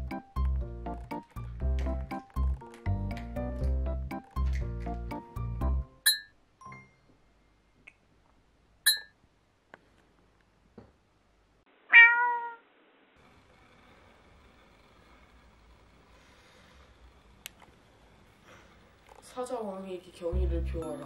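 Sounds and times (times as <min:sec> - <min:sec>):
cat meowing: 0:11.9 - 0:12.6.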